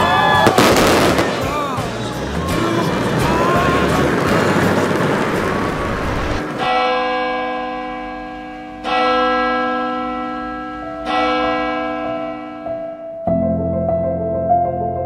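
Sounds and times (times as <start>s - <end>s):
music: 0.0s - 6.4s, 10.8s - 15.0s
church bell tolling: 6.4s - 13.2s.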